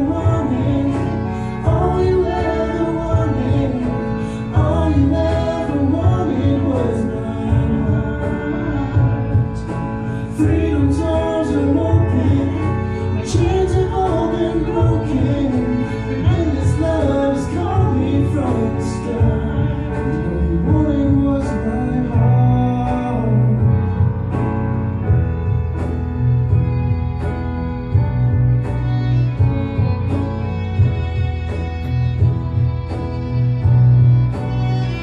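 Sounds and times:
woman and man singing duet: 0.0s - 24.2s
instrumental accompaniment with bass: 0.0s - 35.0s.

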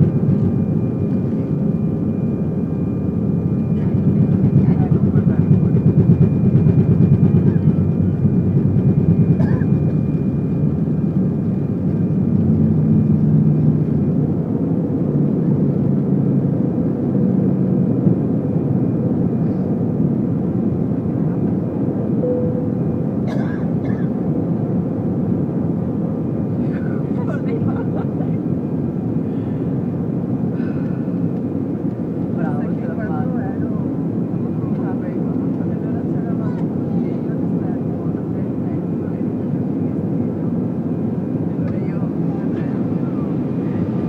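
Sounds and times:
jet engines roaring: 0.0s - 34.5s, 37.4s - 44.0s
thin high engine whine: 22.0s - 24.5s.

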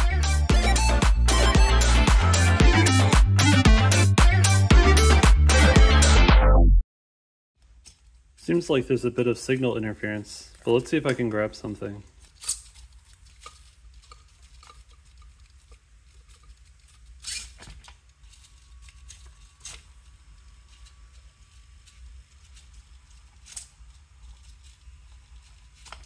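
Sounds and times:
faint thin servo whine: 15.6s - 26.0s.

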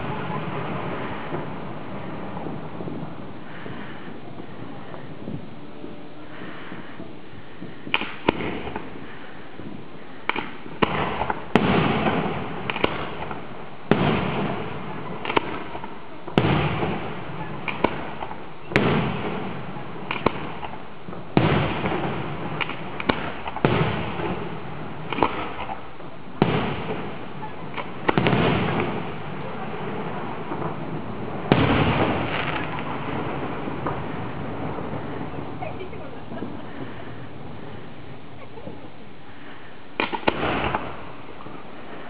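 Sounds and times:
firework shells bursting: 6.8s - 42.0s.

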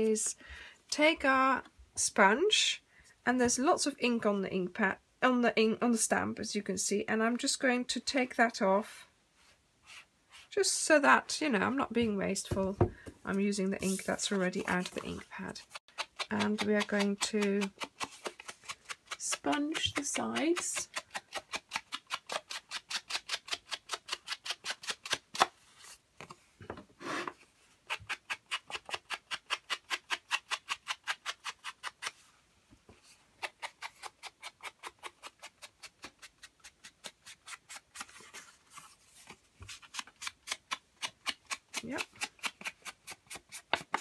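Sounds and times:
foam sponge rubbing cardstock: 13.8s - 15.8s.

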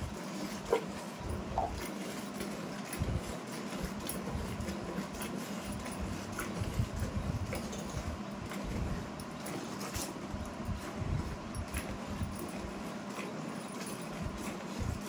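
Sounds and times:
faint hum and low rumble: 0.0s - 15.0s.

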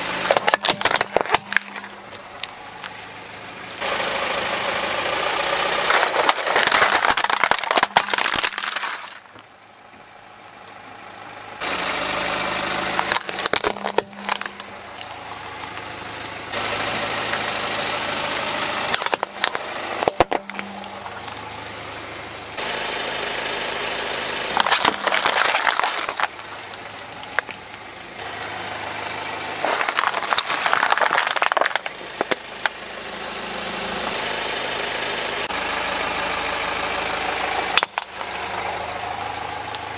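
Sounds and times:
car engine hum: 0.0s - 39.9s
plastic cracking and crunching: 0.2s - 3.0s, 5.8s - 9.4s, 12.9s - 15.8s, 18.4s - 21.4s, 24.6s - 27.8s, 29.6s - 32.8s, 37.8s - 38.4s.

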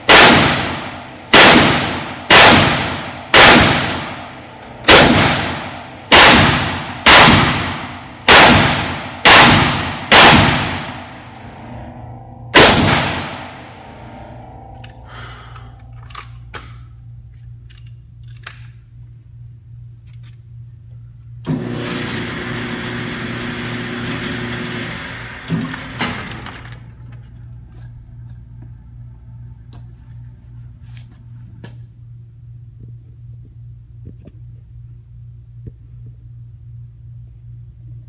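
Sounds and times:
low hum: 0.0s - 21.7s, 26.1s - 38.0s.

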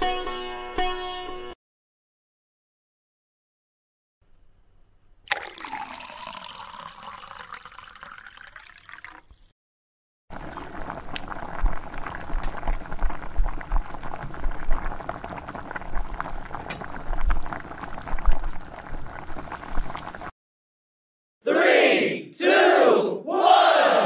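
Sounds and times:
sweet mixture bubbling in a pan: 10.3s - 20.3s.

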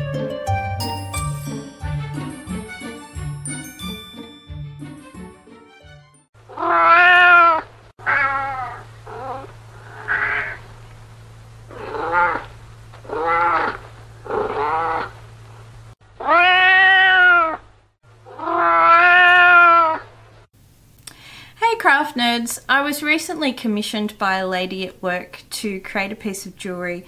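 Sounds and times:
cat meowing: 6.5s - 10.6s, 11.7s - 12.5s, 13.1s - 13.8s, 16.2s - 17.6s, 18.3s - 20.1s.

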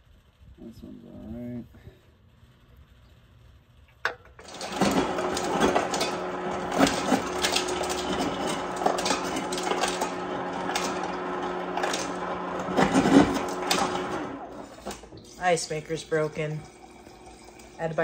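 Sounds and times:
ice clattering: 4.4s - 18.0s
ice dispenser motor hum: 4.4s - 18.0s.

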